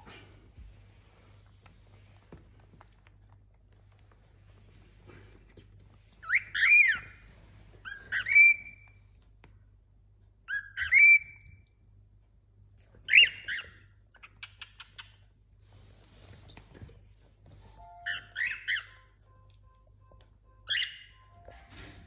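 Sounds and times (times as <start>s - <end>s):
cockatiel whistling: 6.2s - 7.2s, 7.8s - 9.0s, 10.5s - 11.6s, 13.1s - 13.8s, 17.8s - 19.2s, 20.6s - 21.5s.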